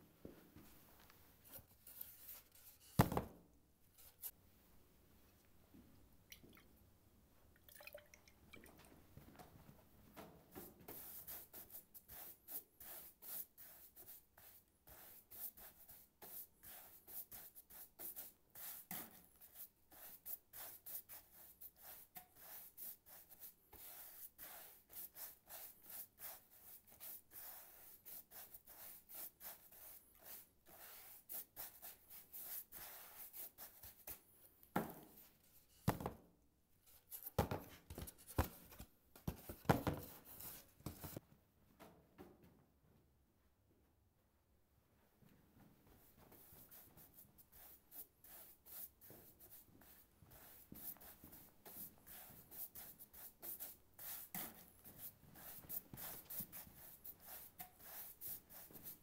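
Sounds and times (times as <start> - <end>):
brush scraping on canvas: 1.4 - 3.0, 10.9 - 34.2, 38.0 - 41.2, 46.4 - 59.0.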